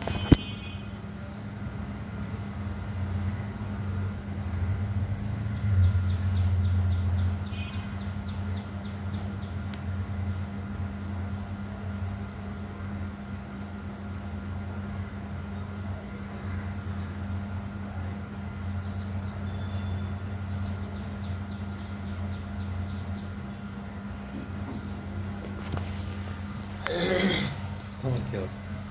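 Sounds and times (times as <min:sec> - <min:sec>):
steady low hum: 0:00.0 - 0:28.9.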